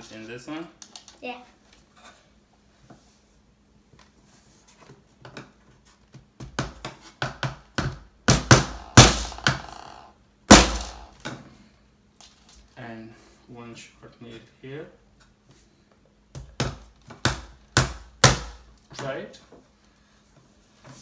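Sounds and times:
hammer hitting nail into wood: 7.2s - 11.2s, 16.4s - 18.6s.

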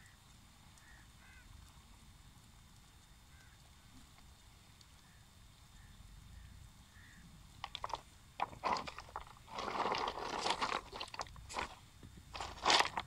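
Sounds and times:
footsteps on pebbles: 7.6s - 13.0s
net scraping over pebbles: 7.6s - 13.0s.

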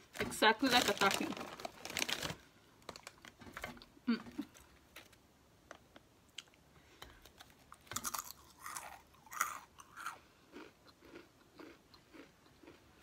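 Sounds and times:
soft chewing: 5.9s - 13.0s
crunchy snack crunching: 7.4s - 12.9s.

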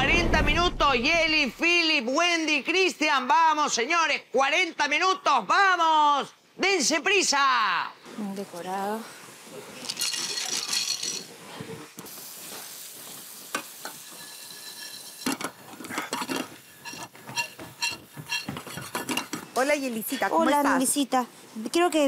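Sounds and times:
food sizzling in a pan: 8.4s - 21.7s
metal utensils clinking on pans: 9.8s - 11.4s, 13.5s - 19.8s.

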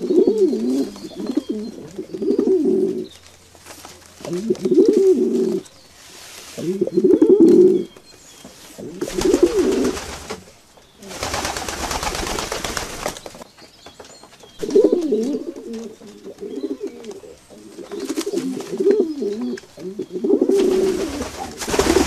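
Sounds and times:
pigeons cooing: 0.0s - 3.3s, 4.2s - 5.7s, 6.5s - 8.0s, 8.7s - 12.8s, 14.6s - 22.0s
wings flapping: 9.0s - 13.4s, 20.5s - 22.0s.

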